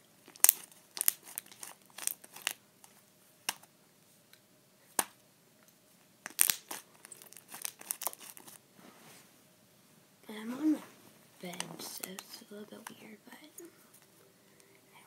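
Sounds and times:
slime sticky pops and crackles: 0.3 - 2.6, 6.2 - 6.8.

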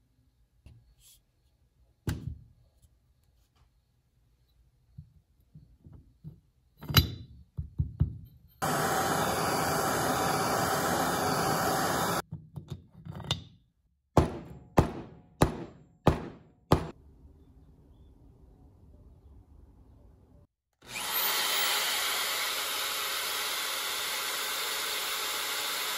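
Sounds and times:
gas torch hissing: 8.6 - 12.2.

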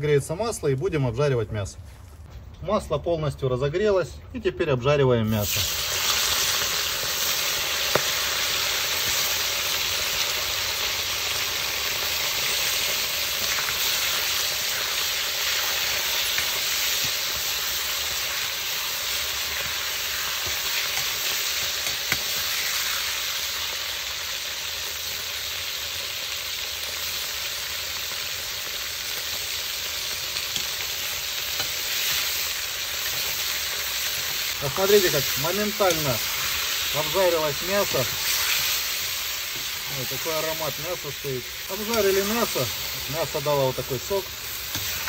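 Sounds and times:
meat sizzling in hot oil: 5.3 - 45.0.

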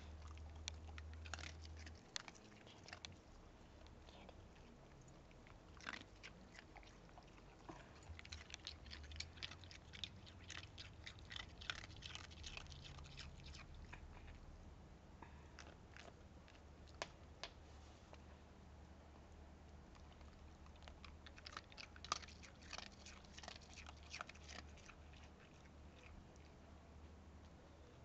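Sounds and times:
dog crunching ice cube: 0.2 - 3.4, 5.0 - 14.2, 20.0 - 26.1.

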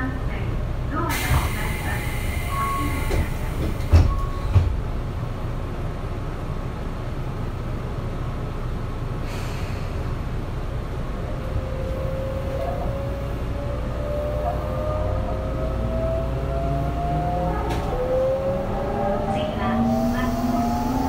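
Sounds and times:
train low rumble: 0.0 - 21.0
train inverter rising whine: 9.7 - 21.0.

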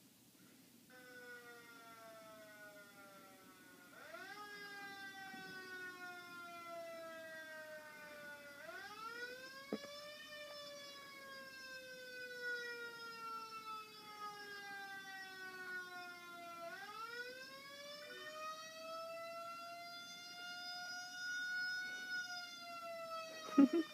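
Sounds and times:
faint wailing siren: 0.8 - 23.9.

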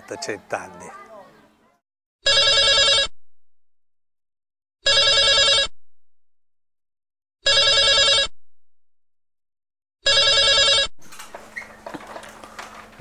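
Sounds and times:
telephone warbling rings: 2.3 - 3.1, 4.9 - 5.7, 7.5 - 8.3, 10.0 - 10.9.

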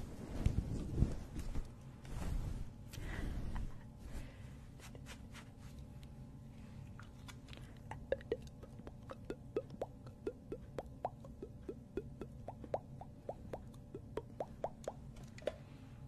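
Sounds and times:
low steady hum: 0.0 - 16.0
water-drop plops: 8.0 - 15.0.

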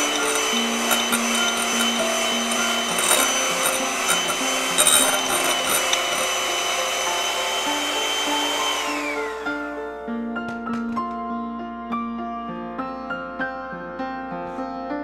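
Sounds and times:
electric hand mixer whining: 0.0 - 10.0.

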